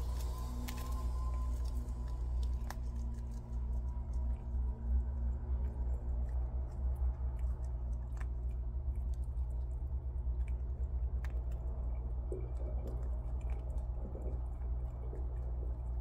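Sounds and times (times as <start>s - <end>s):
animals crunching nuts: 0.0s - 16.0s
steady low hum: 0.0s - 16.0s.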